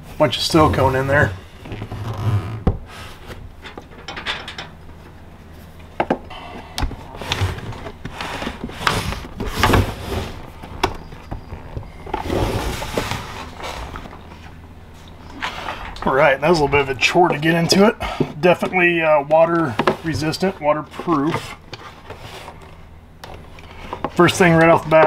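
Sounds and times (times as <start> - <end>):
sharp clicks and knocks: 3.6 - 5.2
plastic case scraping and rubbing: 7.2 - 14.5.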